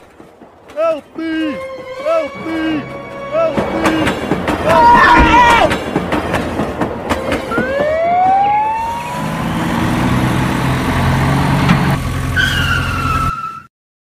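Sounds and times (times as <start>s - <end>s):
siren wailing: 7.5s - 10.0s.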